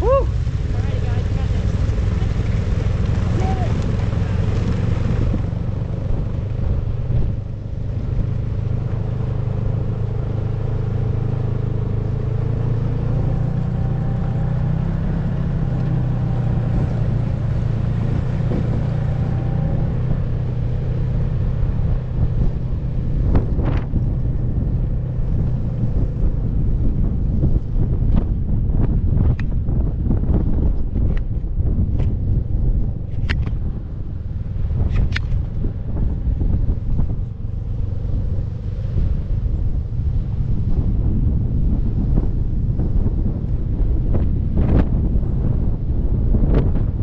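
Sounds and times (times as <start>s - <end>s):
snowmobile engine droning: 0.0s - 29.3s.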